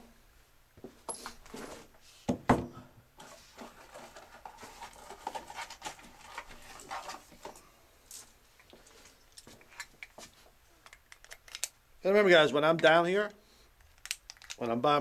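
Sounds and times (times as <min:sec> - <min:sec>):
clicks and knocks of handling: 0:13.8 - 0:14.7.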